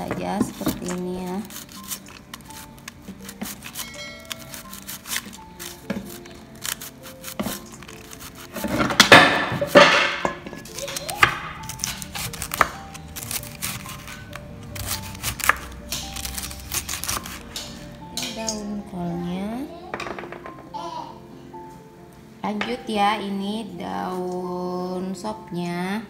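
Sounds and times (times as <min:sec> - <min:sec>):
loud rustling: 0:00.0 - 0:18.4
background music: 0:00.0 - 0:26.0
knife slicing cabbage on board: 0:00.2 - 0:09.8, 0:10.6 - 0:17.7.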